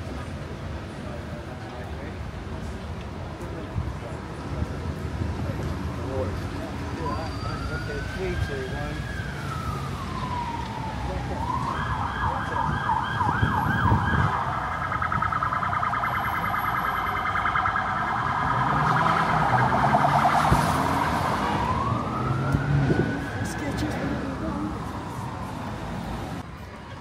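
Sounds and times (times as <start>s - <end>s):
emergency vehicle siren: 5.3s - 27.0s.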